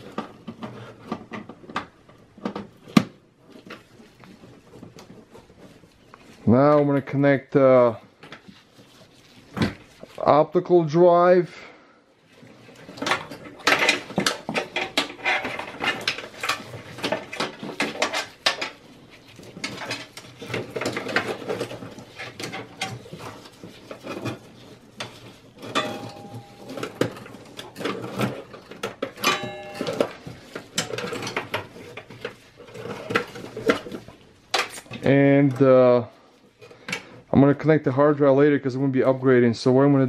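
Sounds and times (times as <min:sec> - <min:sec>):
cables rustling: 0:00.0 - 0:11.4, 0:12.2 - 0:37.4.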